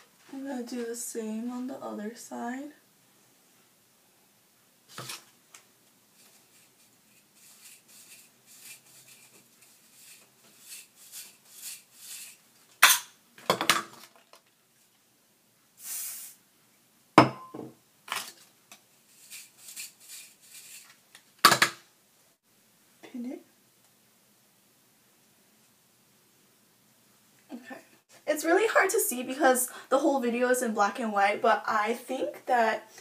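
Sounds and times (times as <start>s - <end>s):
hairbrush rasping through hair: 6.2s - 12.4s, 19.1s - 21.0s.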